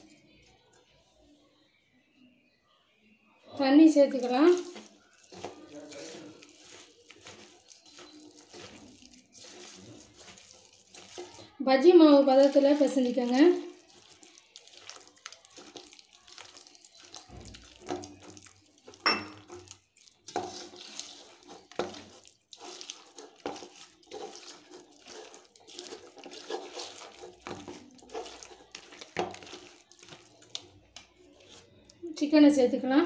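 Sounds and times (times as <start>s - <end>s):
wet batter squelching: 3.4s - 33.0s
fingers scraping metal bowl: 4.1s - 11.6s, 12.4s - 31.9s.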